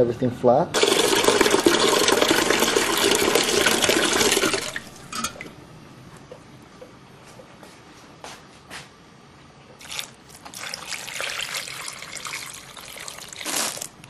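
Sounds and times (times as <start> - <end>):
water pouring into a slow cooker: 0.8 - 5.0, 9.8 - 13.8.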